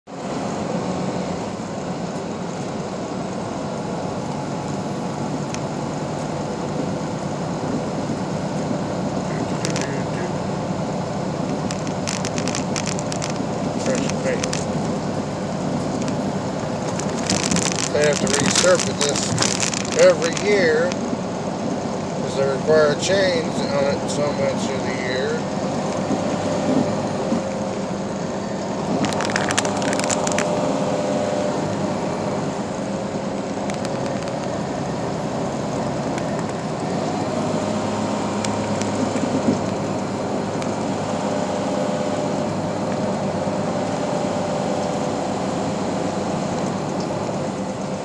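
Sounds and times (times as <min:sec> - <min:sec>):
vehicle road and engine noise: 0:00.0 - 0:48.0
sharp crackling clicks: 0:09.4 - 0:10.2, 0:11.4 - 0:15.0, 0:15.8 - 0:21.1, 0:28.8 - 0:30.6, 0:33.4 - 0:34.7, 0:36.0 - 0:36.9, 0:38.4 - 0:40.8.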